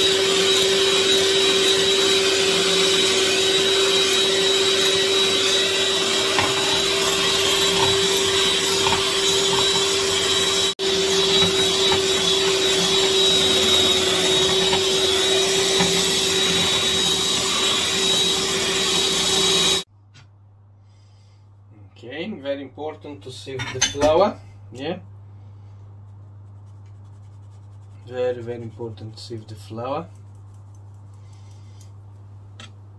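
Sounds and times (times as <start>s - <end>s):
electric mixer motor whining: 0.0s - 19.9s.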